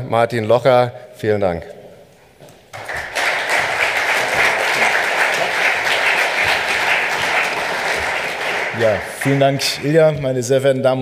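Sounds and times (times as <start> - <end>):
audience applause: 2.7 - 10.0.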